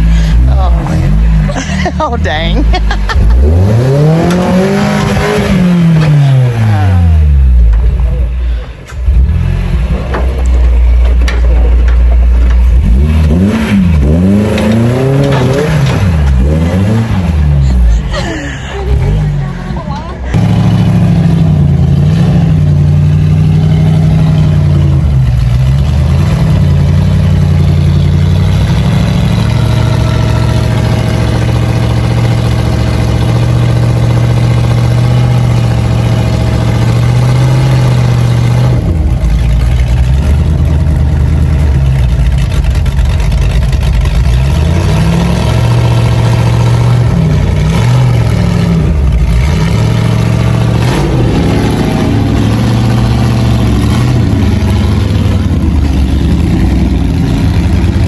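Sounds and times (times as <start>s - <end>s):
off-road vehicle engine: 0.0s - 58.0s.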